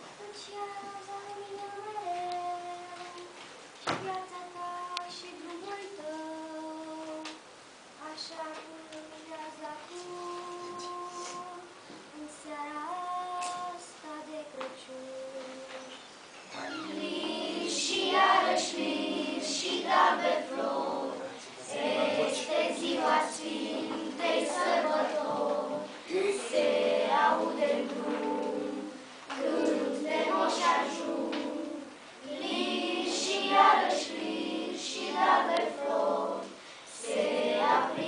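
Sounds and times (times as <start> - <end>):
children's choir singing: 16.5 - 38.0.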